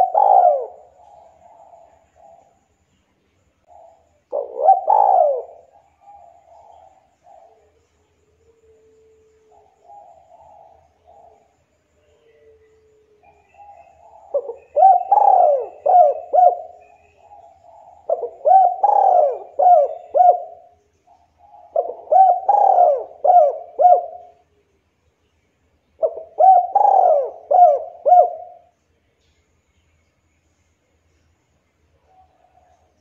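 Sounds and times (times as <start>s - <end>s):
dove cooing: 0.0s - 2.6s, 3.6s - 24.5s, 26.0s - 28.7s.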